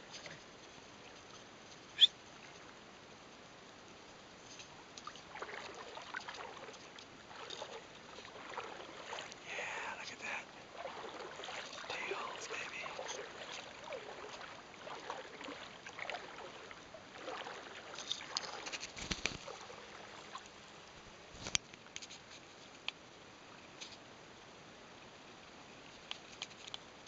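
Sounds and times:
water lapping against boat hull: 0:05.0 - 0:20.6.

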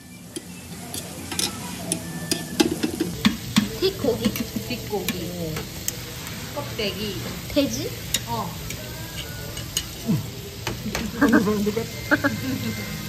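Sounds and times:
meat sizzling on griddle: 0:00.0 - 0:13.0
metal tongs clicking and scraping: 0:00.3 - 0:05.2.

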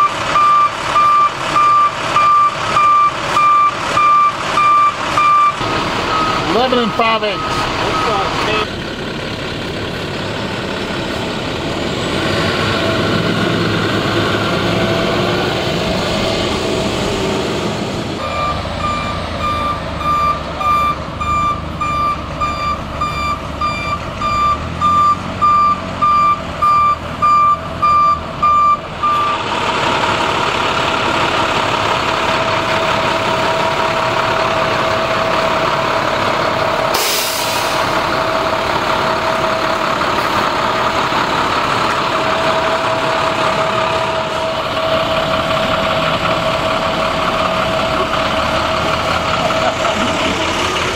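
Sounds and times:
backup alarm beeping: 0:00.0 - 0:08.7, 0:18.2 - 0:29.4
diesel truck engine running: 0:00.0 - 0:50.9
air brake hiss: 0:36.9 - 0:37.9.

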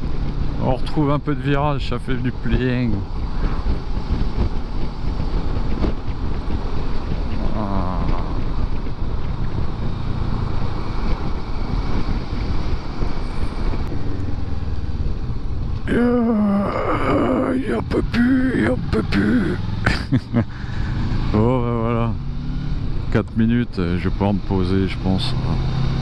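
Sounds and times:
motorcycle engine rumble: 0:00.0 - 0:26.0
wind noise on microphone: 0:01.6 - 0:19.0.

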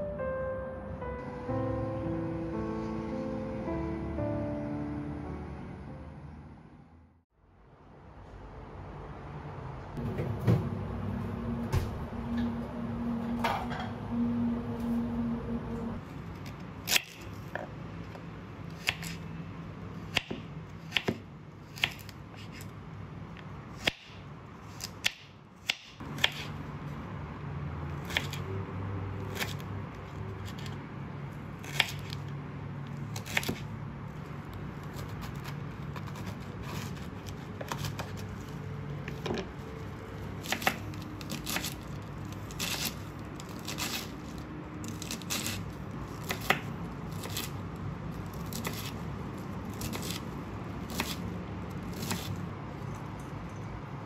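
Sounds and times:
low steady hum: 0:10.0 - 0:16.4.

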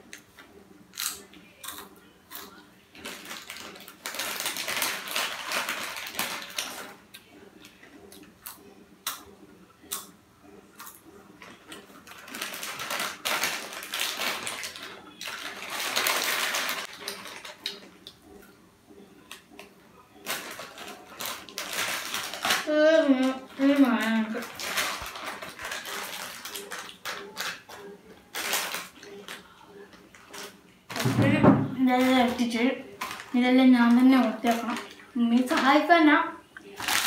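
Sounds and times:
potato chips crunching: 0:00.9 - 0:06.9, 0:10.8 - 0:17.9, 0:20.2 - 0:29.5, 0:36.7 - 0:37.0
foil packet rustling: 0:02.9 - 0:07.0, 0:11.4 - 0:18.0, 0:20.2 - 0:29.5, 0:30.1 - 0:36.0, 0:36.7 - 0:37.0.

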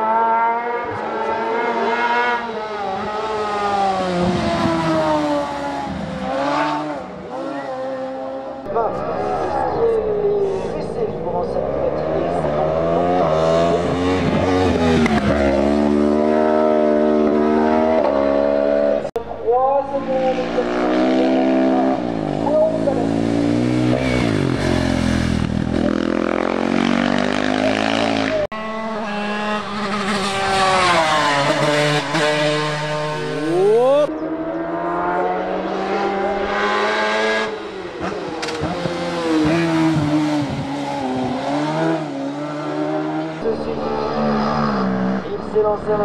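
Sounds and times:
motorcycle engines revving: 0:00.0 - 0:46.0
sidecar engine: 0:00.0 - 0:46.0.

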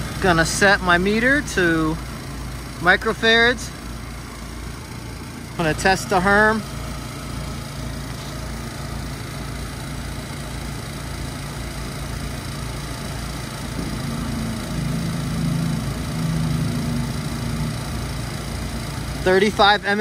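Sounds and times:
low mechanical hum and rumble: 0:00.0 - 0:20.0
humming tone: 0:13.7 - 0:18.8.

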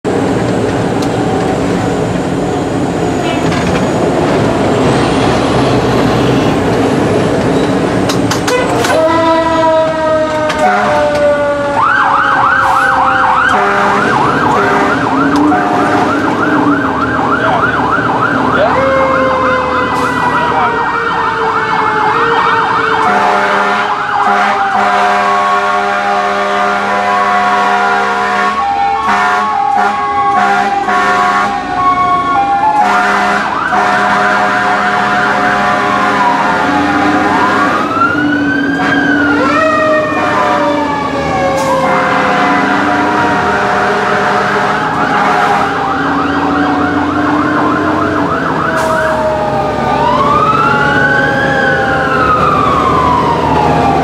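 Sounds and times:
engine and road rumble: 0:00.0 - 0:54.0
fire truck siren: 0:00.0 - 0:54.0.

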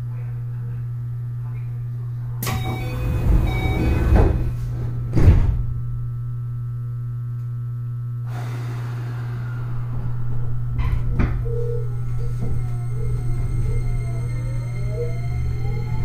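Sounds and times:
train low hum: 0:00.0 - 0:06.8, 0:08.2 - 0:16.0
sliding door closing thud: 0:02.4 - 0:05.7.

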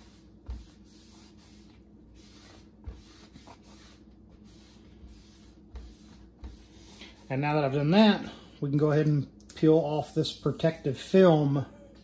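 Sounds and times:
cloth rag rubbing: 0:00.0 - 0:07.5.

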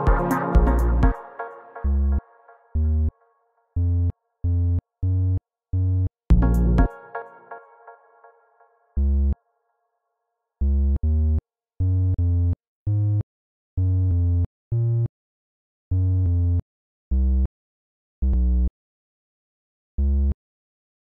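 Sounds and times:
synth bass notes: 0:00.0 - 0:03.1, 0:03.8 - 0:07.1, 0:09.0 - 0:09.4, 0:10.6 - 0:13.2, 0:13.8 - 0:15.1, 0:15.9 - 0:17.5.

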